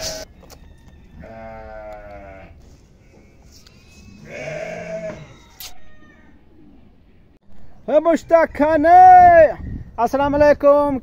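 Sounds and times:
goat kids bleating: 0.0s - 0.3s, 1.2s - 2.6s, 3.8s - 5.4s.

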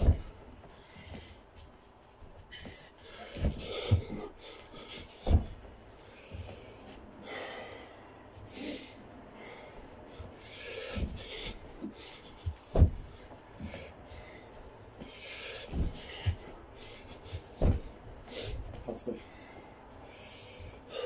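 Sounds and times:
dull thuds on carpet: 0.0s - 0.4s, 2.7s - 6.7s, 12.4s - 13.8s, 15.6s - 16.5s, 17.2s - 18.8s
man breathing hard: 0.1s - 1.7s, 2.5s - 21.0s.

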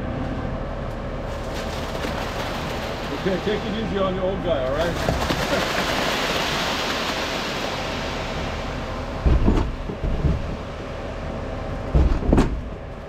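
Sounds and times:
wet concrete sliding down chute: 4.7s - 10.5s
heavy low thumps: 8.6s - 10.9s.

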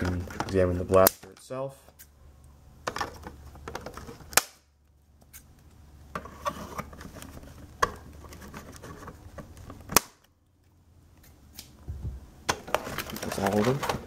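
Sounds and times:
rustling and handling of box: 0.0s - 0.9s, 2.9s - 4.3s, 6.2s - 9.9s, 11.9s - 14.0s.

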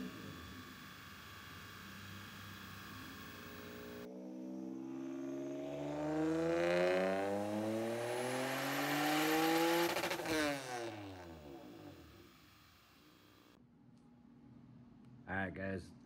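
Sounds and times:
engine revving at full throttle: 0.0s - 12.8s
high turbo whine: 0.0s - 13.6s.

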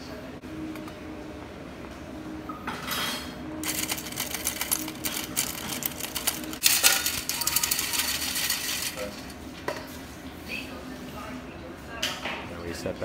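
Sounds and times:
flour sifter cranking and rasping: 3.6s - 9.3s.

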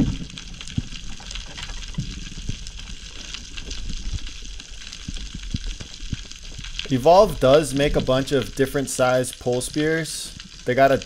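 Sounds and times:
low underwater rumble: 0.0s - 8.2s.

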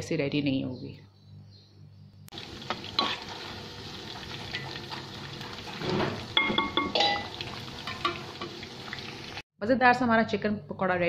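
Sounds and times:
chicken deep-frying in hot oil: 2.3s - 9.4s.

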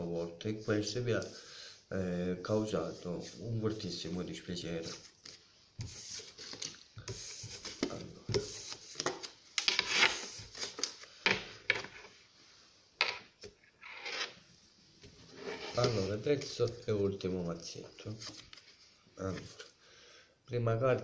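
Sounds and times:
cards sliding and rustling on table: 4.8s - 12.3s, 13.8s - 14.4s, 15.0s - 16.7s.

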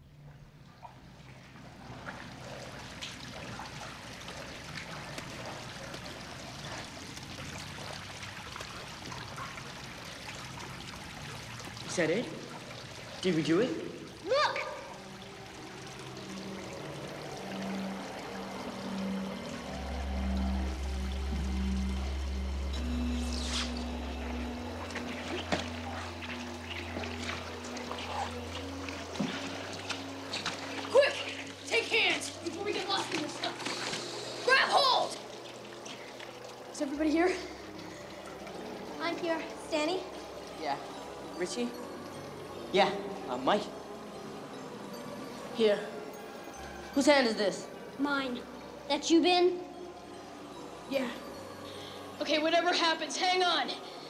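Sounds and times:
water pouring down a shaft: 0.7s - 52.8s
small splashes and knocks: 0.8s - 11.8s, 24.7s - 34.5s
low music drone: 1.6s - 54.0s.

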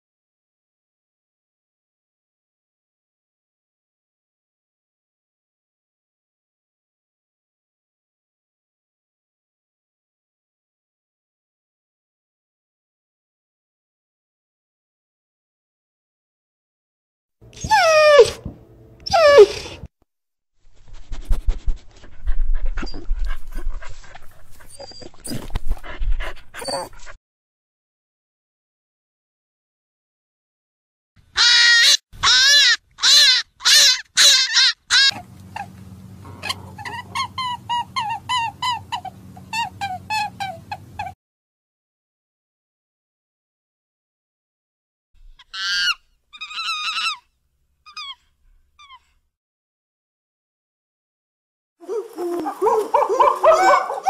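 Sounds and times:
dog panting: 20.9s - 27.2s.

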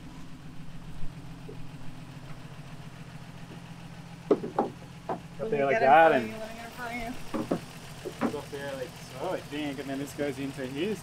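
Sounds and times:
engine idling: 0.0s - 11.0s
short knocks: 4.3s - 5.3s, 7.3s - 8.5s.

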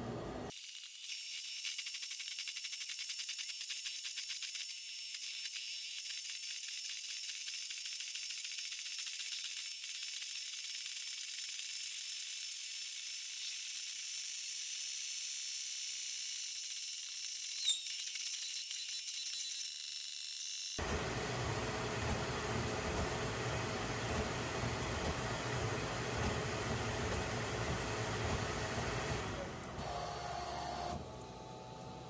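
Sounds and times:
printer hiss with whining tones: 20.4s - 31.8s.

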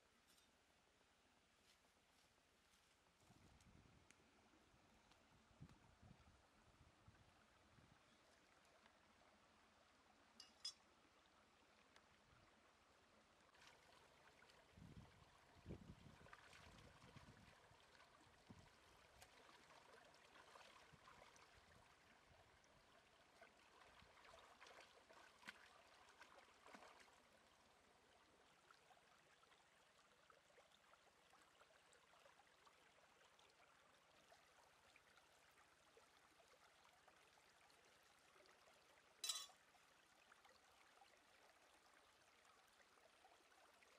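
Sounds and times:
stream trickling: 3.0s - 43.9s.

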